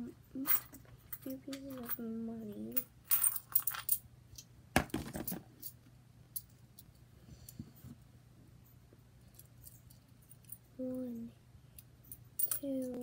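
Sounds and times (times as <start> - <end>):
coins clinking: 2.7 - 4.0, 12.0 - 13.0.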